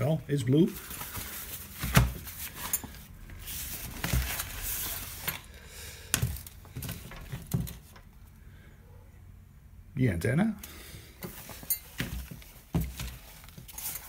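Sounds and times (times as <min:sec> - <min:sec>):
fabric bag rustling: 0:11.3 - 0:14.0.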